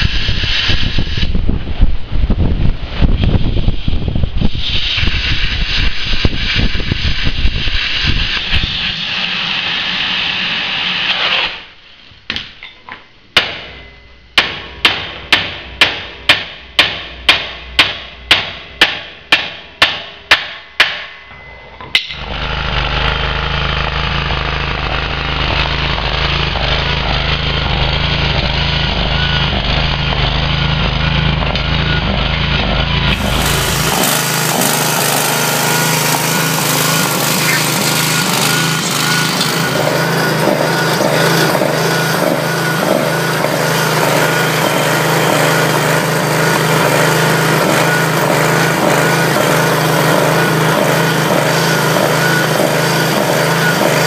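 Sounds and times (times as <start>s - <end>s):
engine running: 21.8s - 54.0s
welder crackling: 32.4s - 54.0s.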